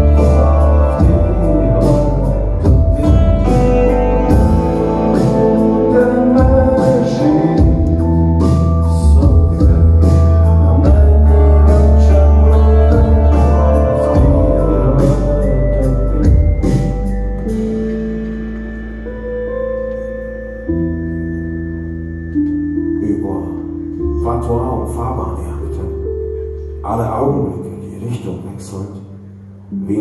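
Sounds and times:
electric guitar: 0:00.0 - 0:21.2
heavy bass: 0:00.0 - 0:30.0
organ-like keyboard: 0:00.0 - 0:30.0.

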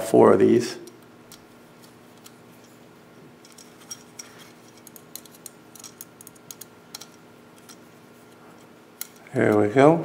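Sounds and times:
hex key metallic clicks: 0:03.4 - 0:07.9.

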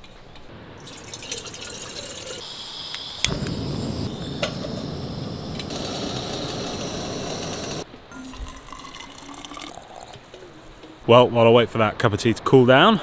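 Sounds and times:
gas burner hissing: 0:00.5 - 0:07.9
water pouring into kettle: 0:00.8 - 0:02.4, 0:07.6 - 0:10.2.

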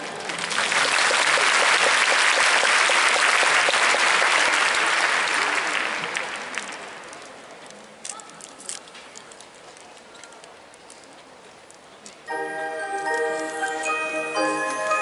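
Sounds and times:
large audience applauding: 0:00.0 - 0:06.9
band music: 0:12.3 - 0:15.0.

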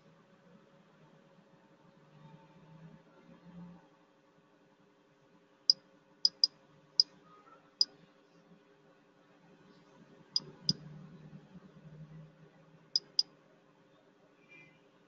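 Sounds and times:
computer mouse clicking: 0:06.3 - 0:06.5, 0:13.0 - 0:13.2.

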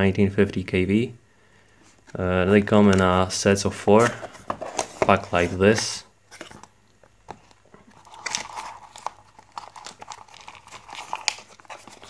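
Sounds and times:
cardboard rustling and scraping: 0:03.9 - 0:06.7, 0:07.3 - 0:12.0.

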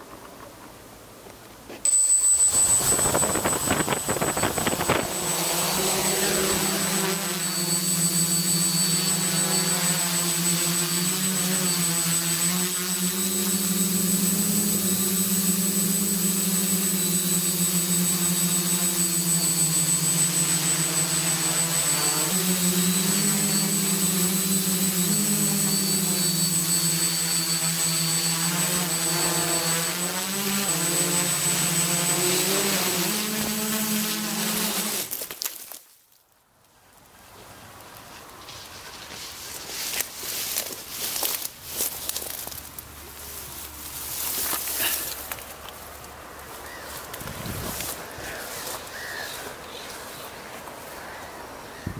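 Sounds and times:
quadcopter motors buzzing: 0:01.8 - 0:35.4, 0:39.8 - 0:51.9.

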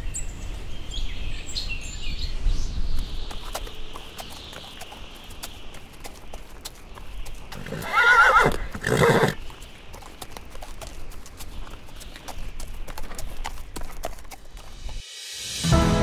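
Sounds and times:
horse hooves clopping: 0:02.8 - 0:15.0
horse whinnying: 0:07.6 - 0:09.4.

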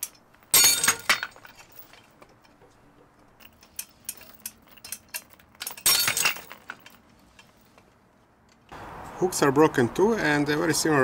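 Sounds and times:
metal hook and chain jangling: 0:03.4 - 0:07.0.

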